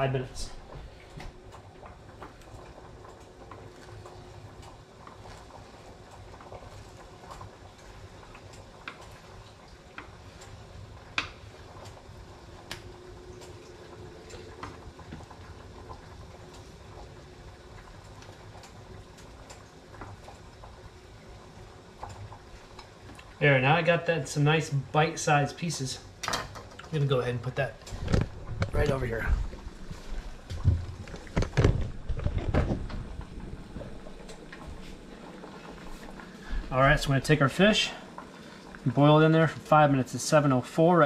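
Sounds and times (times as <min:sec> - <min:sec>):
low steady rumble: 0:27.0 - 0:40.4.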